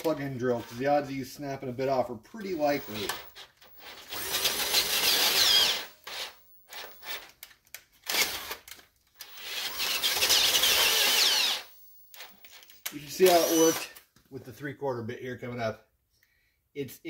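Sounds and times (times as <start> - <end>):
drill boring into steel: 2.5 - 7.2, 8.1 - 8.6, 9.2 - 14.0
high squeal of drill bit: 2.8 - 7.0, 9.3 - 12.3, 13.3 - 13.9.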